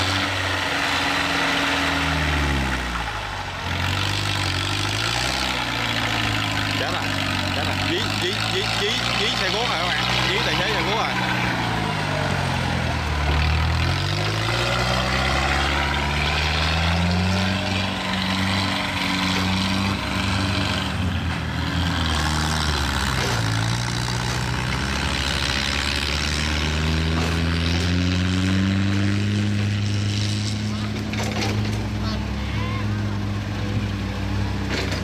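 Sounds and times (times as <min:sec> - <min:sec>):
tracked carrier engines running: 0:02.0 - 0:29.8.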